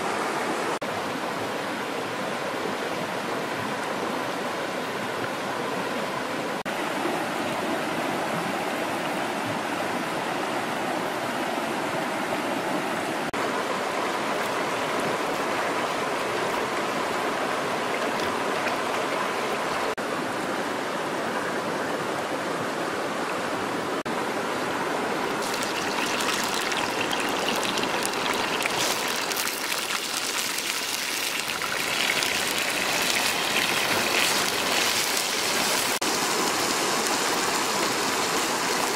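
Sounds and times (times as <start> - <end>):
stream running over rocks: 0.0 - 38.9
worms sizzling in a hot pan: 25.4 - 36.0.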